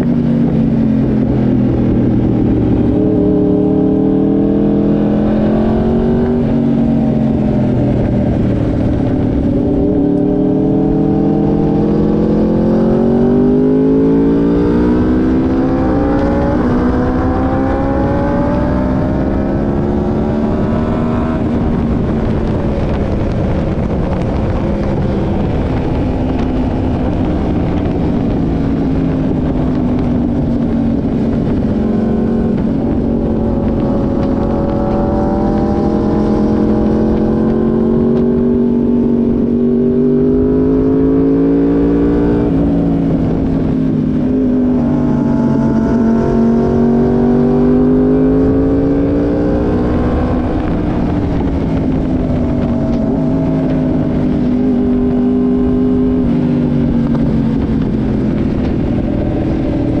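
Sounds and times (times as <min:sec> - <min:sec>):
motorcycle engine revving: 0:00.0 - 1:00.0
wind rush: 0:00.0 - 1:00.0.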